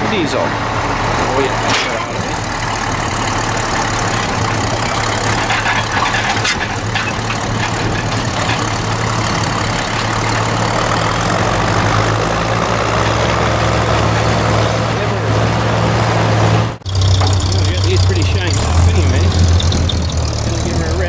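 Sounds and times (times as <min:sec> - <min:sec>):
diesel tractor engine running: 0:00.0 - 0:21.0
metallic clanks: 0:01.4 - 0:11.9, 0:16.8 - 0:21.0.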